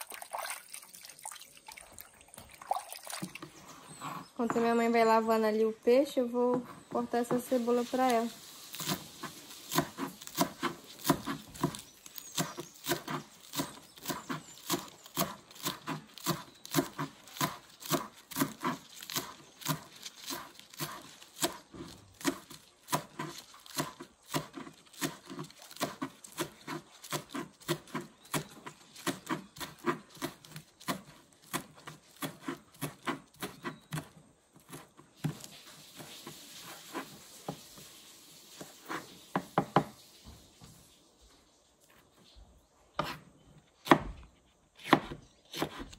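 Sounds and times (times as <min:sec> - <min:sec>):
knife chopping on wooden board: 0:08.7 - 0:36.1, 0:38.9 - 0:39.9, 0:43.0 - 0:43.2, 0:43.8 - 0:45.9.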